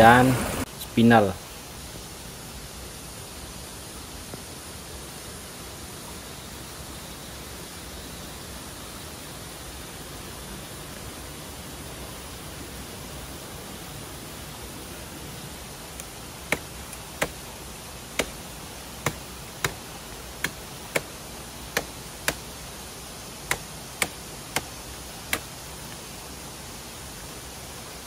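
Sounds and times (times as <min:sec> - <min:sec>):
flowing river water: 0:00.0 - 0:28.0
sharp knocks on wood: 0:16.5 - 0:17.4, 0:18.2 - 0:18.4, 0:19.0 - 0:19.8, 0:20.4 - 0:21.1, 0:21.8 - 0:22.4, 0:23.5 - 0:24.7.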